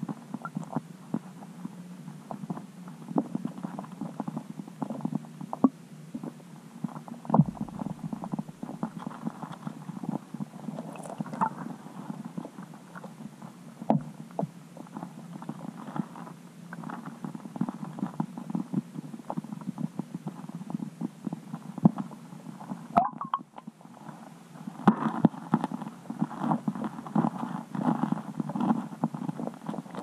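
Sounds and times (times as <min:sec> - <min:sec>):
underwater low rumble: 0:07.2 - 0:13.2, 0:23.0 - 0:23.6
muffled underwater knocking: 0:07.3 - 0:08.6, 0:23.0 - 0:23.5
squeaky warble: 0:23.0 - 0:23.4.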